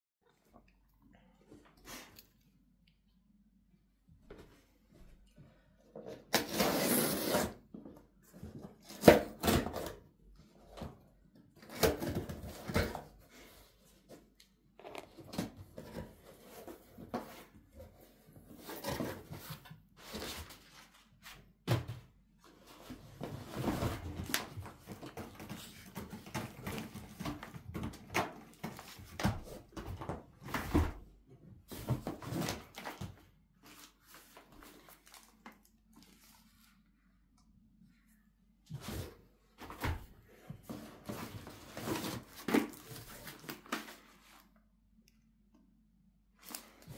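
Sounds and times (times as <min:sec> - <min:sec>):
packing paper rustling and crinkling: 0:31.8 - 0:36.8.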